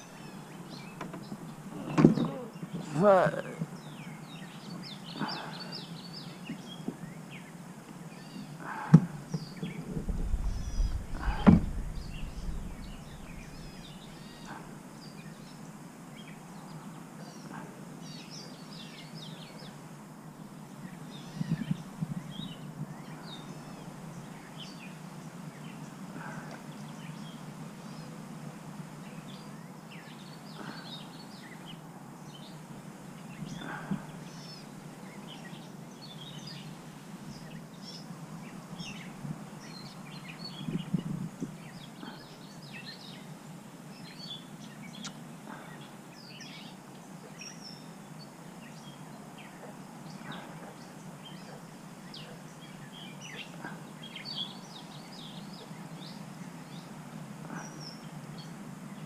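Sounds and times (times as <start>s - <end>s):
small birds chirping: 0.0s - 19.8s, 20.4s - 28.3s, 29.0s - 59.0s
sharp knocks: 9.0s - 13.8s
steady low hum: 9.1s - 15.9s
short low rumble: 9.6s - 14.5s.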